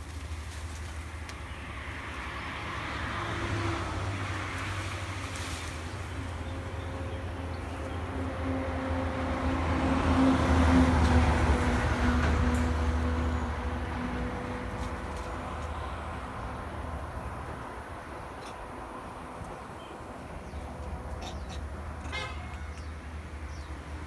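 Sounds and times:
highway traffic passing: 0.0 - 24.0.

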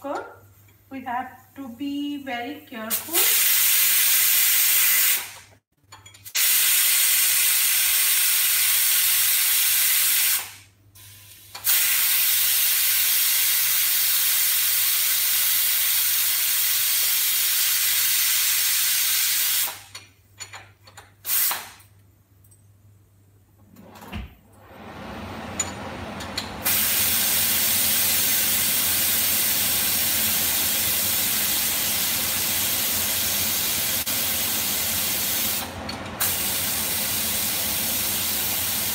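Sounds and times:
steam hissing from pressure cooker: 2.9 - 5.4, 6.4 - 19.8, 21.3 - 21.7, 26.6 - 38.9.

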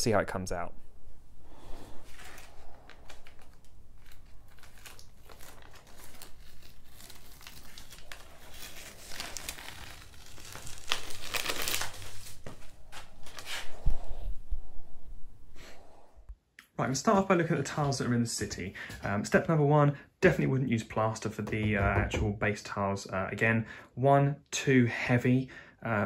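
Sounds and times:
masking tape peeling and crinkling: 2.1 - 13.7.

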